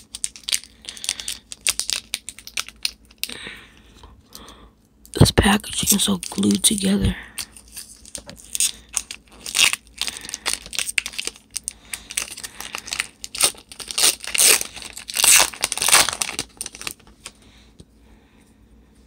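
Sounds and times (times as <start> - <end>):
foil wrapper tearing and crinkling: 0.0 - 3.3, 7.4 - 17.2.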